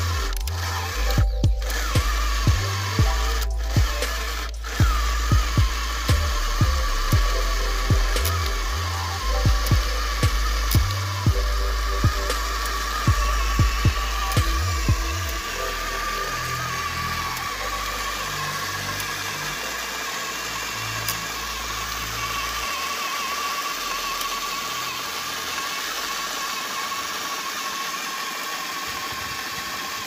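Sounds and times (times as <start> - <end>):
toy truck electric motor whining: 0.0 - 30.0
low rumble: 0.1 - 16.3.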